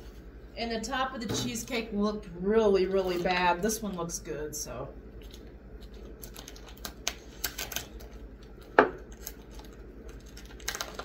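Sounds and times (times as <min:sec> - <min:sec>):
plastic wrap crinkling: 0:05.2 - 0:11.0.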